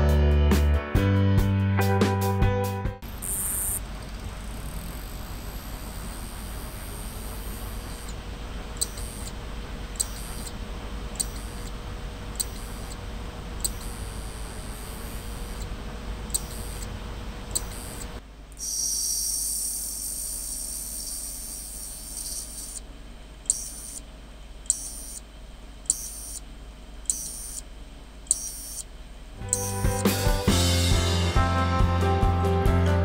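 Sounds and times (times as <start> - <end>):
hard drive whining: 3.0 - 31.1
hard drive clicking: 3.1 - 30.2.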